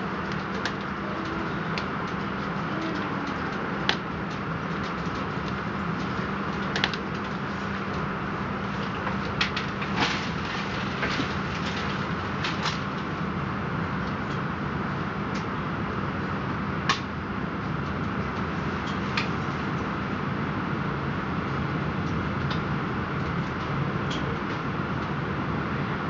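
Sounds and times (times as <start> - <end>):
train running rumble: 0.0 - 26.0.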